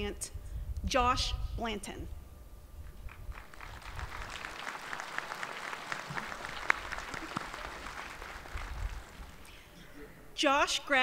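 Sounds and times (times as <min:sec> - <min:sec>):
audience applauding: 0:03.1 - 0:09.6.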